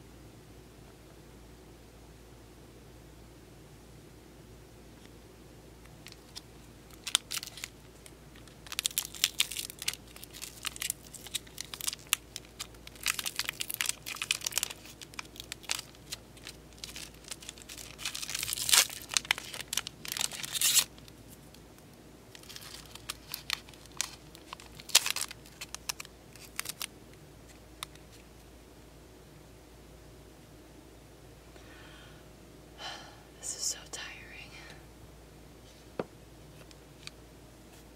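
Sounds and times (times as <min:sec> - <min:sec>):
cards rustling: 0:06.0 - 0:21.1, 0:22.4 - 0:26.9
foil wrapper crinkling and tearing: 0:06.0 - 0:21.6, 0:22.3 - 0:26.9.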